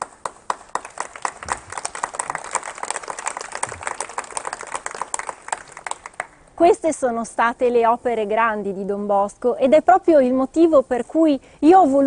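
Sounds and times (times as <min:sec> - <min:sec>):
audience clapping: 0:00.0 - 0:06.4.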